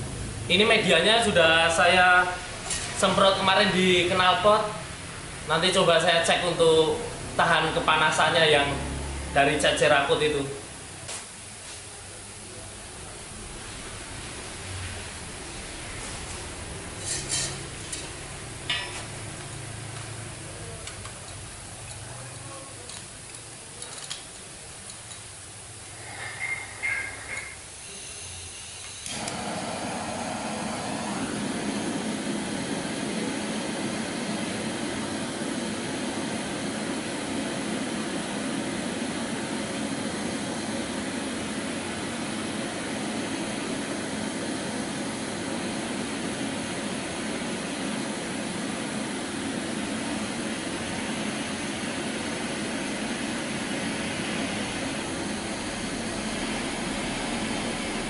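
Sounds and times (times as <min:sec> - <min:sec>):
gas torch flame hissing: 0:00.0 - 0:58.0
torch ignition click: 0:28.8 - 0:32.4.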